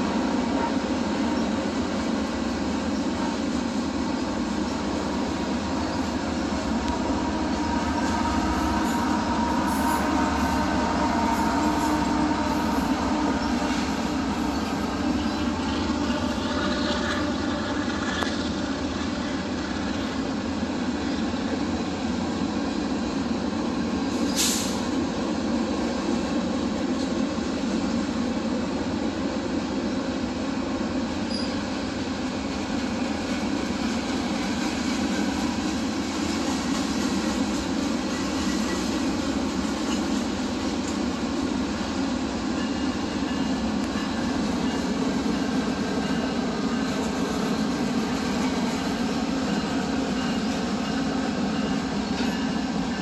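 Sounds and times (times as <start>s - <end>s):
freight train cars rumbling: 0.0s - 53.0s
faint wheel squeal: 31.2s - 31.7s.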